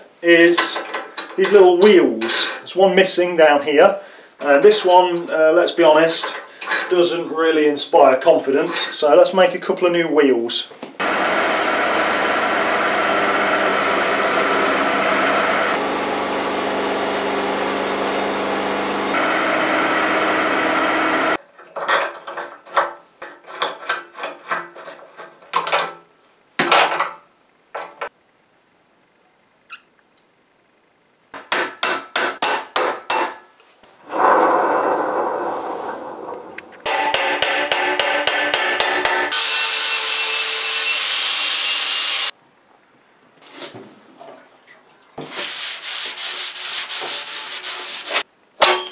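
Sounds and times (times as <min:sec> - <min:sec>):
metal lathe running: 0:11.0 - 0:21.4.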